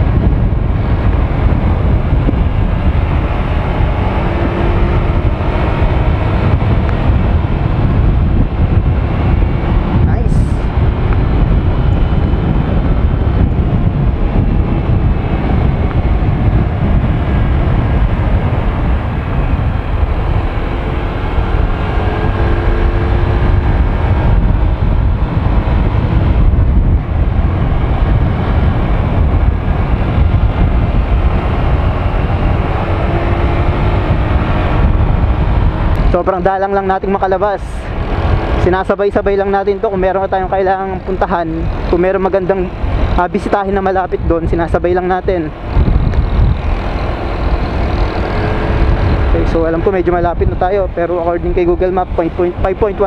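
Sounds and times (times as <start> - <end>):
wind rush on microphone: 0.0 - 53.0.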